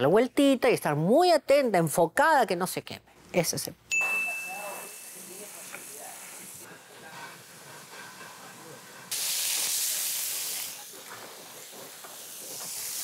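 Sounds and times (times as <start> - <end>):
quiet kitchen sounds: 0.0 - 13.0
meat sizzling in a frying pan: 5.0 - 6.7, 9.1 - 13.0.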